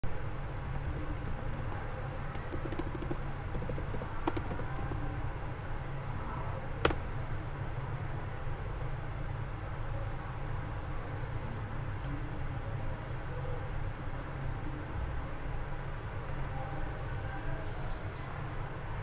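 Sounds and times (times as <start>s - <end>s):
keyboard typing: 0.0s - 5.6s, 6.2s - 7.1s.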